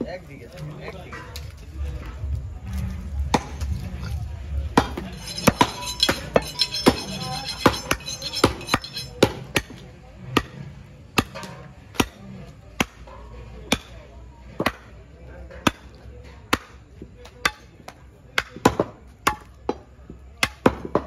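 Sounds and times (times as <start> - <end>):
cleaver chopping meat on wood: 16.5 - 16.8.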